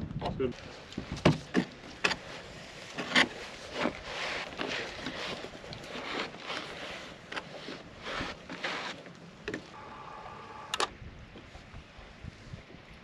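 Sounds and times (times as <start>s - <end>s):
rough scraping: 0.7s - 9.8s.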